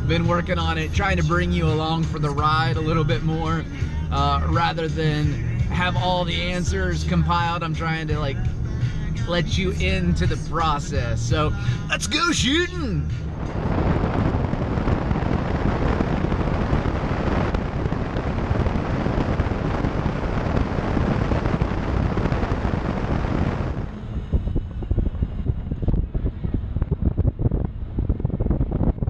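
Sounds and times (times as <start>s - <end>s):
road and engine noise: 0.0s - 29.0s
wind buffeting: 13.1s - 29.0s
wind rushing over camera: 13.1s - 29.0s.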